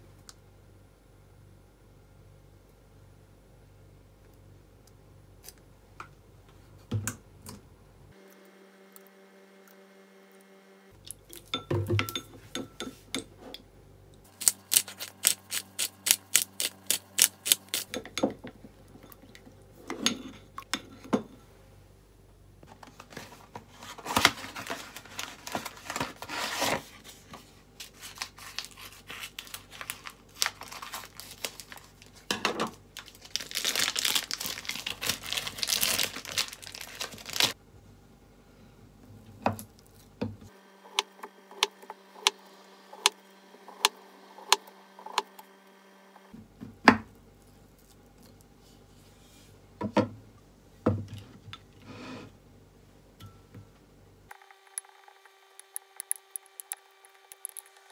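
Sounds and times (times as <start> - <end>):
packaging crinkling: 23.1 - 26.8, 27.8 - 32.3, 33.0 - 37.6.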